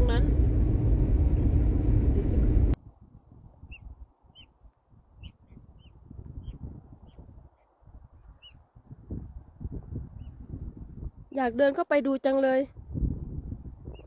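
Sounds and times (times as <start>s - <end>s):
car cabin road rumble: 0.0s - 2.8s
high bird calls: 3.7s - 4.5s, 5.2s - 7.2s, 8.4s - 8.6s.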